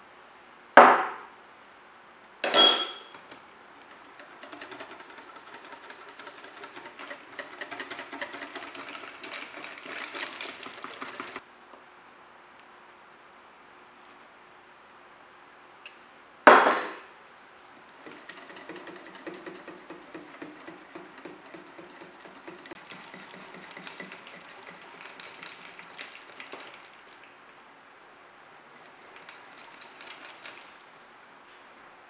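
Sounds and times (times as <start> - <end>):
utensil scraping in a bowl: 3.9 - 11.4, 17.8 - 26.9, 28.7 - 30.8.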